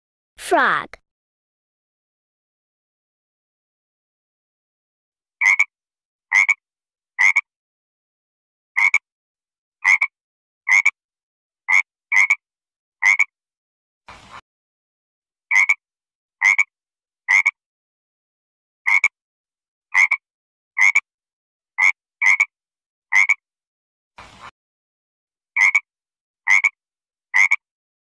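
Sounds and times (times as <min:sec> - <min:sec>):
frog croaking: 0:05.4 - 0:05.7, 0:06.3 - 0:06.6, 0:07.2 - 0:07.5, 0:08.8 - 0:09.0, 0:09.8 - 0:10.1, 0:10.7 - 0:11.0, 0:11.7 - 0:12.4, 0:13.0 - 0:13.3, 0:15.5 - 0:15.8, 0:16.4 - 0:16.7, 0:17.3 - 0:17.6, 0:18.9 - 0:19.1, 0:20.0 - 0:20.2, 0:20.8 - 0:21.0, 0:21.8 - 0:22.5, 0:23.1 - 0:23.4, 0:25.6 - 0:25.9, 0:26.5 - 0:26.8, 0:27.4 - 0:27.6.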